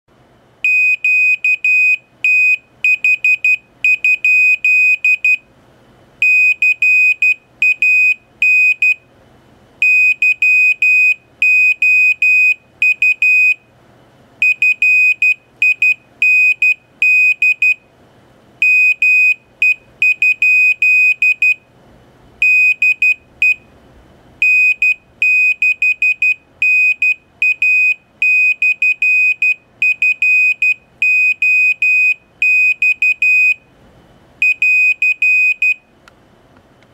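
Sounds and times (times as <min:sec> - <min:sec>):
buzzer beeping morse code: 0:00.6 - 0:05.4, 0:06.2 - 0:09.0, 0:09.8 - 0:13.6, 0:14.4 - 0:17.8, 0:18.6 - 0:21.6, 0:22.4 - 0:23.6, 0:24.4 - 0:33.6, 0:34.4 - 0:35.8.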